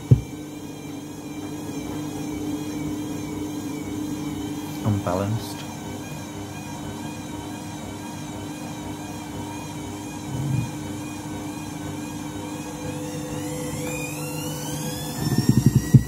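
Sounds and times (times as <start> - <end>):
washing machine drum motor whining: 0.0 - 16.0
low thud: 0.1 - 0.3.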